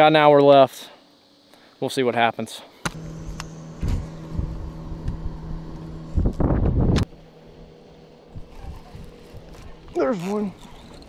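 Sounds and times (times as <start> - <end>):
electric motor humming: 2.8 - 11.0
brief motor rumble: 2.9 - 11.0.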